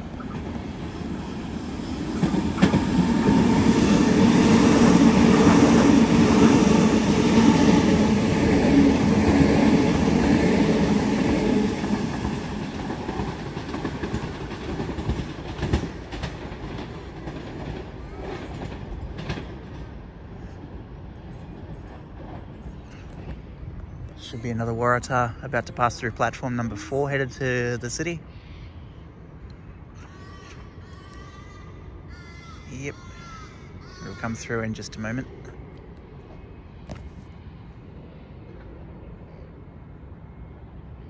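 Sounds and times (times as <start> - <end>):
electric train passing: 0.0 - 28.3.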